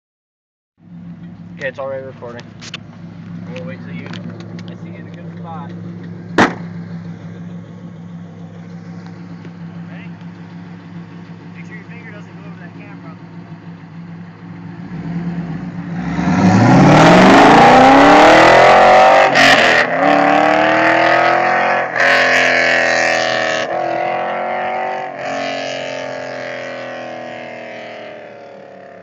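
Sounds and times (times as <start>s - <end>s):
car engine accelerating hard: 0.9s - 29.0s
gear changes: 1.1s - 19.0s.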